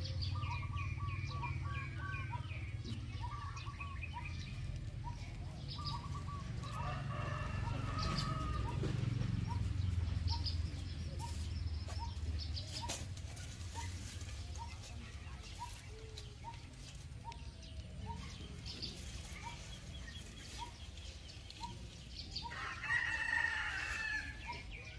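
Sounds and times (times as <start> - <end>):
birds chirping: 0.0 - 24.9
rooster crowing: 6.6 - 9.0, 22.4 - 24.7.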